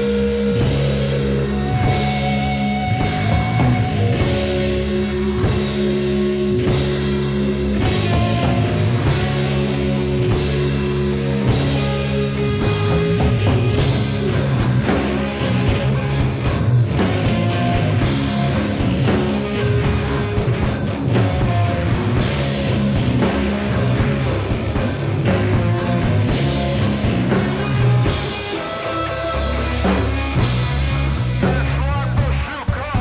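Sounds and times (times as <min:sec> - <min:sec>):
drum kit beat: 0:00.0 - 0:33.0
electric bass: 0:00.0 - 0:33.0
electric guitar: 0:00.0 - 0:33.0.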